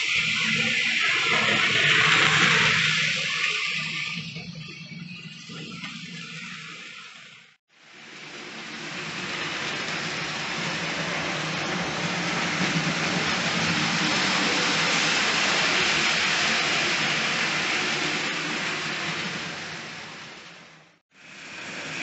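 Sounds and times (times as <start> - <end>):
model train wheels rattling on rails: 8.2 - 20.4.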